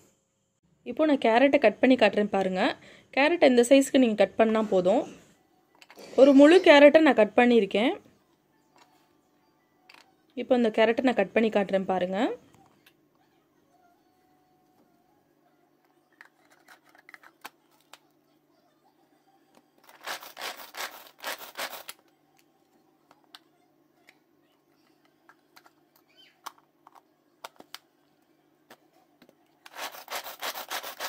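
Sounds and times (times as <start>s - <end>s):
plastic clattering and scraping: 16.2s - 18.0s
blades rasping through carrot: 29.7s - 31.0s.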